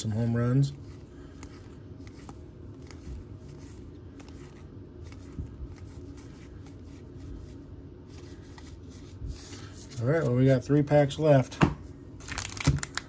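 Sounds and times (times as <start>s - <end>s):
trading cards rustling: 0.0s - 10.7s, 12.2s - 13.0s.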